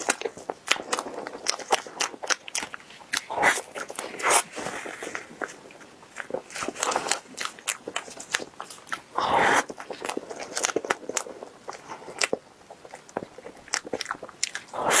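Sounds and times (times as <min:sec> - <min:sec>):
person chewing with mouth clicks: 0:00.0 - 0:15.0.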